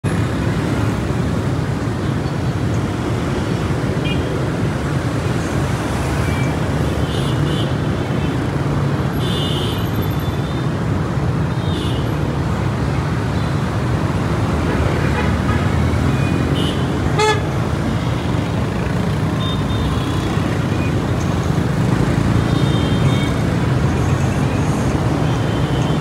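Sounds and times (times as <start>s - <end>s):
motorbikes and cars running: 0.0s - 26.0s
street traffic rumble: 0.0s - 26.0s
high horn toots: 16.6s - 17.5s.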